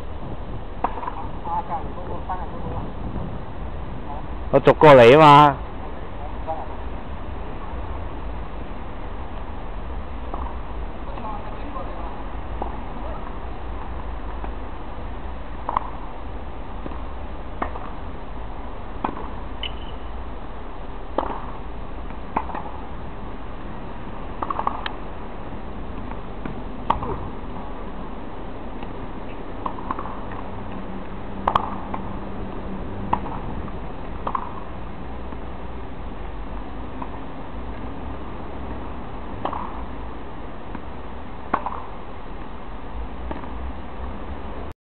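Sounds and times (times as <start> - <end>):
low background noise: 0.0 - 44.7
tennis ball pocks: 0.8 - 1.2, 15.6 - 16.0, 19.0 - 19.8, 21.1 - 21.6, 22.3 - 22.8, 24.4 - 25.0, 26.0 - 27.2, 29.6 - 30.5, 31.4 - 32.1, 33.1 - 33.4, 34.2 - 34.7, 39.4 - 39.9, 41.5 - 42.0.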